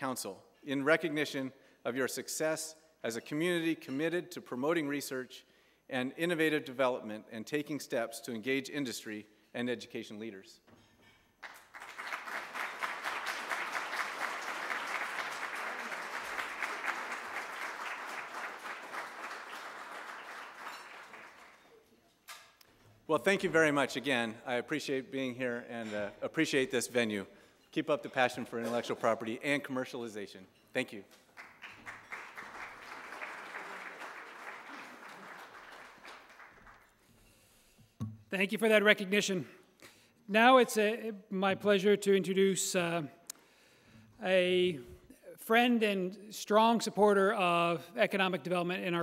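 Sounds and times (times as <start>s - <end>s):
audience applauding: 11.4s - 21.8s, 31.4s - 37.0s.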